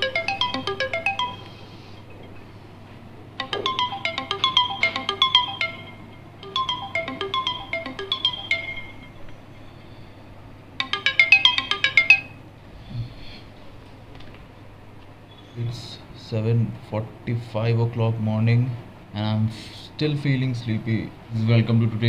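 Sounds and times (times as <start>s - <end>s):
smartphone alarm melody: 0.0s - 2.2s, 3.4s - 9.3s, 10.8s - 12.4s
faint steady hum: 0.0s - 22.0s.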